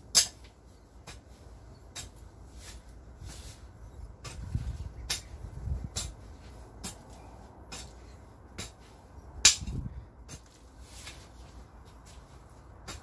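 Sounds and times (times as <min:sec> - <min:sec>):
hoe chopping into soil: 0:04.2 - 0:11.3.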